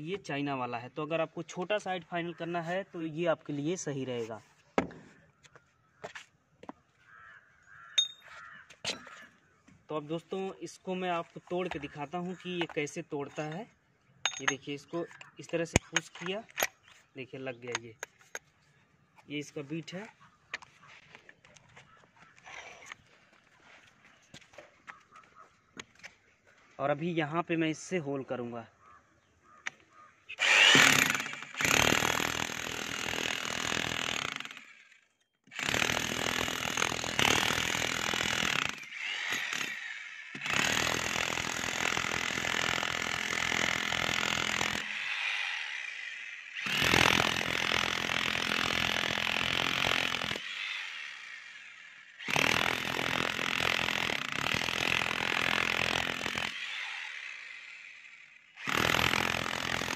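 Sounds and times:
demolition hammer chiselling concrete: 0:30.4 - 0:34.6, 0:35.6 - 0:45.8, 0:46.6 - 0:51.0, 0:52.2 - 0:57.2, 0:58.6 - 0:59.9.

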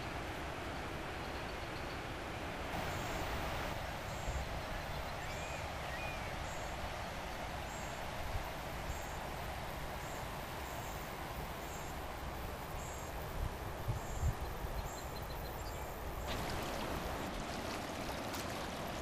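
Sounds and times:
river rapids rushing: 0:16.3 - 0:19.0.

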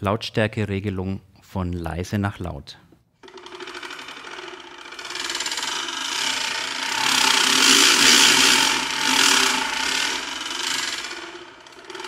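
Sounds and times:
crank ratchet rattling: 0:03.2 - 0:12.0.

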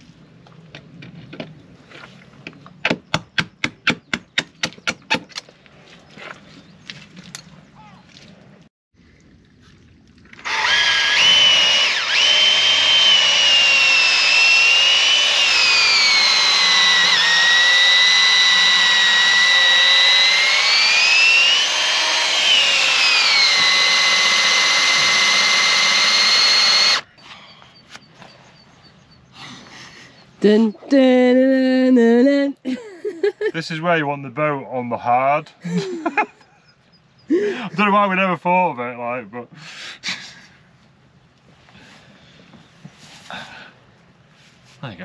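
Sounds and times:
cordless drill boring into wood: 0:10.4 - 0:27.1.

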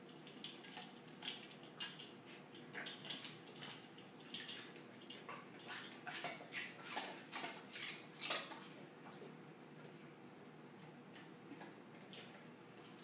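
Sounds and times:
dog licking and crunching ice: 0:00.1 - 0:08.8.

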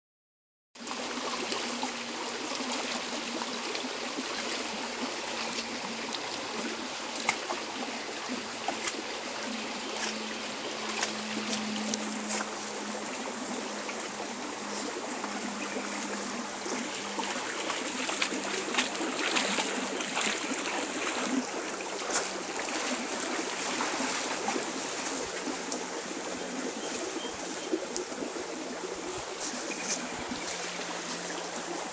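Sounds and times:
creek water running: 0:00.8 - 0:31.9
dog splashing in water: 0:16.7 - 0:25.6.

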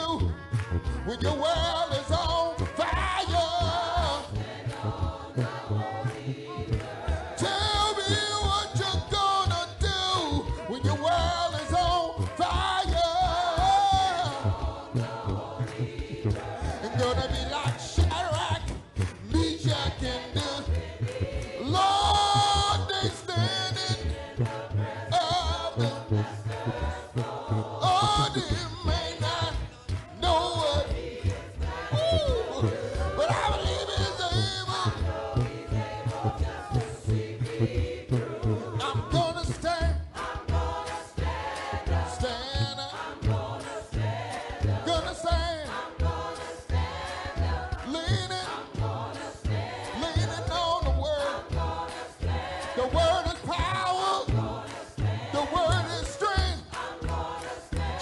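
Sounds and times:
choir singing a cappella: 0:00.0 - 0:58.0.

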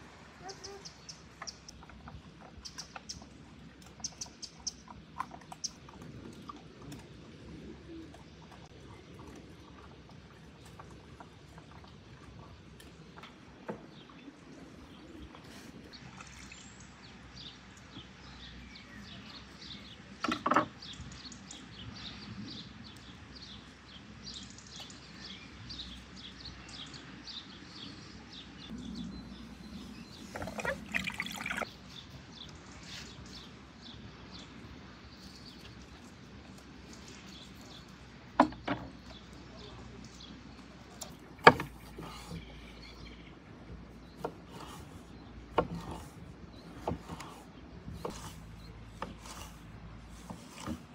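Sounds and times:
small birds chirping: 0:00.4 - 0:50.9
water sloshing in a bowl: 0:01.4 - 0:17.7, 0:29.7 - 0:32.8.

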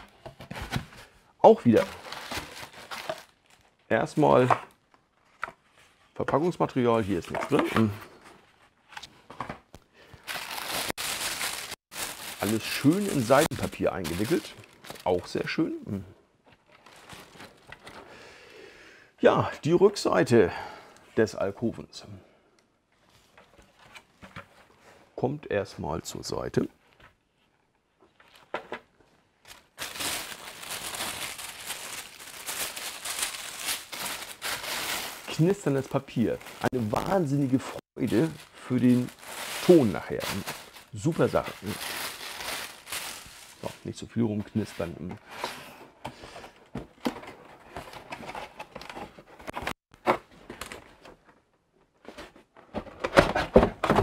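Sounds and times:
tissue paper crinkling: 0:01.7 - 0:03.7, 0:10.2 - 0:15.4, 0:29.4 - 0:43.8.

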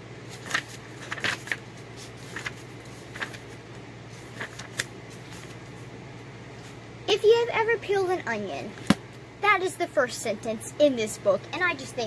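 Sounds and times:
faint steady hum: 0:00.0 - 0:12.0
book pages turning: 0:00.3 - 0:05.9.

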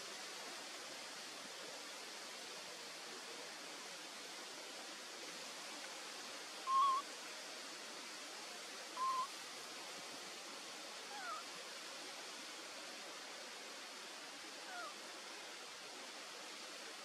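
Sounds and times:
steady forest hiss: 0:00.0 - 0:17.0
animal call: 0:06.7 - 0:07.0, 0:09.0 - 0:09.3, 0:11.1 - 0:11.4, 0:14.7 - 0:15.0
downward-sliding animal calls: 0:06.7 - 0:07.0, 0:09.0 - 0:09.3.

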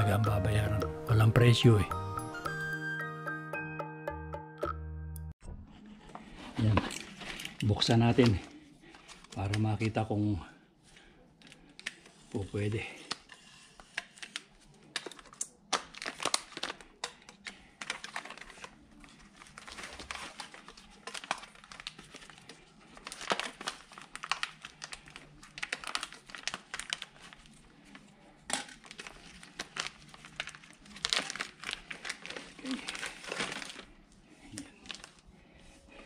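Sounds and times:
plastic packaging crinkling: 0:11.4 - 0:36.0.

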